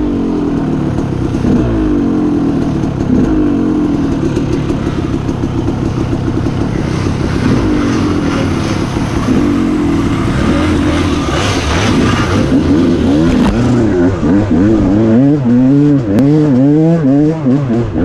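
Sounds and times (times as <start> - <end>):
dirt bike engine revving: 0.0 - 18.0.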